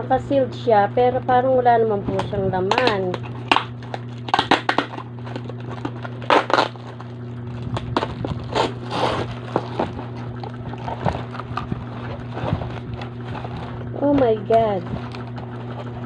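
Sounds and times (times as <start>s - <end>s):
steady low hum: 0.0s - 16.0s
bubble wrap crinkling: 2.7s - 16.0s
cardboard box rustling: 4.7s - 16.0s.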